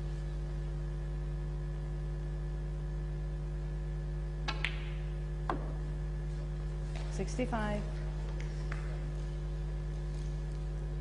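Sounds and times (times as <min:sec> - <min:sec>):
low electrical hum: 0:00.0 - 0:11.0
cue striking ball click: 0:04.4 - 0:05.8
snooker balls clicking: 0:04.4 - 0:05.8.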